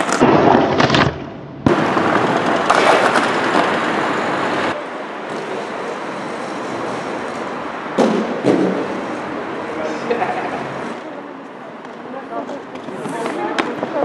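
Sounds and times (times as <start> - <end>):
skate wheels rolling on pavement: 0.0 - 14.0.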